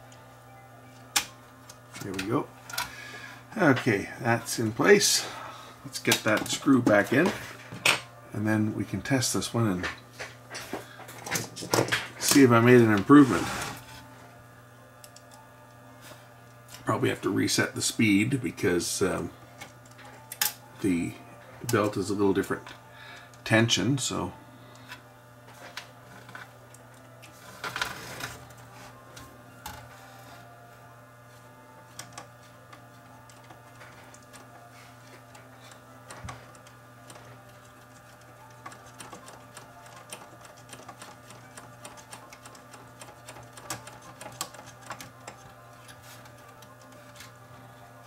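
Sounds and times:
low steady hum: 0:00.0 - 0:48.0
clicks and rattles in cassette deck: 0:37.9 - 0:47.3.

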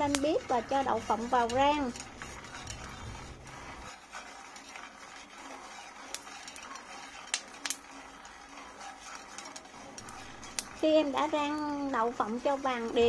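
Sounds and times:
chopsticks clicking on a pan: 0:00.0 - 0:03.0, 0:05.7 - 0:08.4
nuts rustling in a frying pan: 0:00.0 - 0:13.0.

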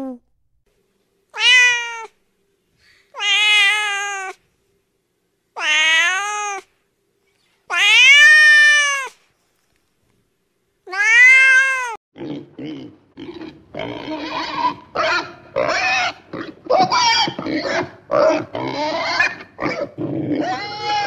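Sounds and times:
cat meowing: 0:01.4 - 0:02.2, 0:03.2 - 0:04.4, 0:05.6 - 0:06.7, 0:07.7 - 0:09.2, 0:10.9 - 0:12.0.

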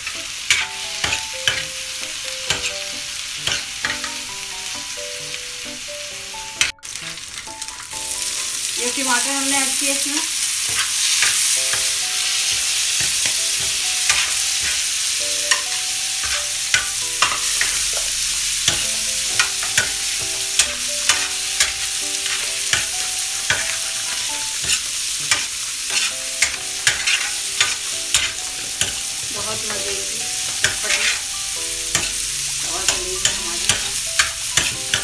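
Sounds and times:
metal spoon scraping griddle: 0:00.0 - 0:01.7, 0:10.6 - 0:35.0
food sizzling in oil: 0:00.0 - 0:35.0.

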